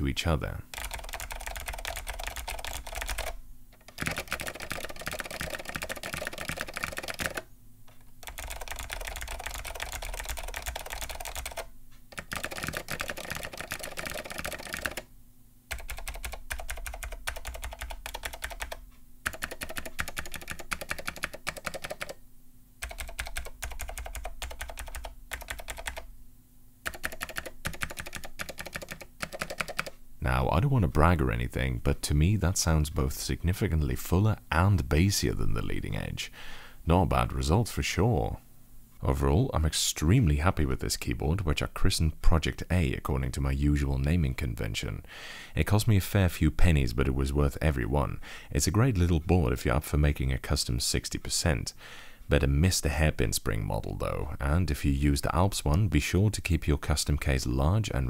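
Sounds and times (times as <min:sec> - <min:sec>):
fast typing on keyboards: 0:00.7 - 0:07.5, 0:08.2 - 0:15.0, 0:15.7 - 0:22.2, 0:22.8 - 0:26.1, 0:26.8 - 0:29.9.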